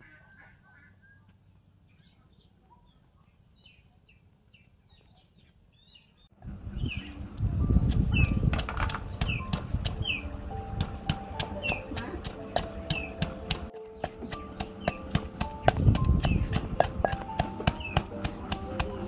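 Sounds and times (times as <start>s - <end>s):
birds chirping faintly: 0.0s - 16.6s, 17.3s - 19.0s
pestle pounding in clay mortar: 7.8s - 19.0s.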